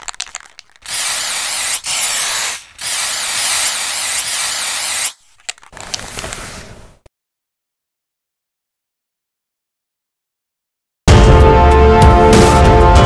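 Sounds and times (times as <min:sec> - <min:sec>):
loud hiss: 0:00.8 - 0:05.2.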